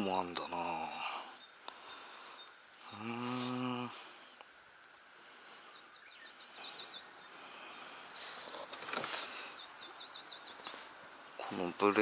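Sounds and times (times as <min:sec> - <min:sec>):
faint background hiss: 0:00.0 - 0:12.0
brief rustle: 0:08.2 - 0:09.4.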